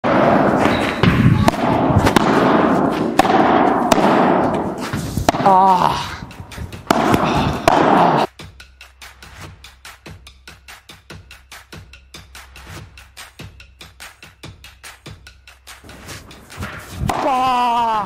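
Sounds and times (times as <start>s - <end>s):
ball struck with rackets: 0.0s - 5.8s, 6.7s - 8.3s, 16.0s - 18.0s
person shouting: 5.4s - 6.2s, 17.1s - 18.0s.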